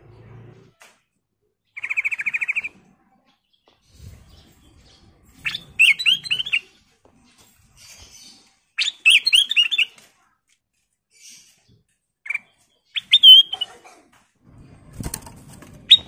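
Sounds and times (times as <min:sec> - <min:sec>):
slurred whistled bird notes: 0:05.4 - 0:06.6, 0:08.8 - 0:09.9, 0:12.3 - 0:13.6.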